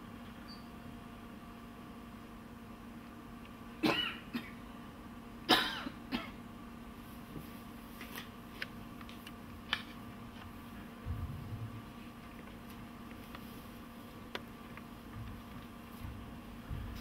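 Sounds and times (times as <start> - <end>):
steady low hum: 0.0 - 17.0
person coughing: 3.8 - 4.6, 5.5 - 6.4.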